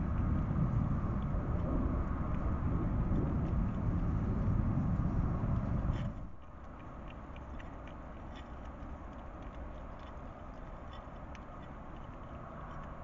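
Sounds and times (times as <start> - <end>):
low rumble: 0.0 - 6.4
hedgehogs chewing and crunching food: 0.0 - 13.0.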